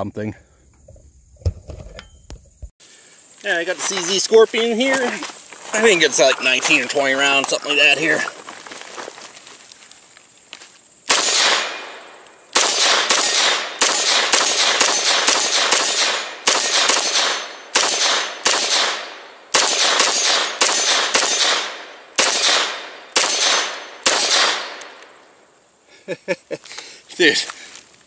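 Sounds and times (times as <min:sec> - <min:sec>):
semi-automatic gunshots: 0:11.1 - 0:25.0.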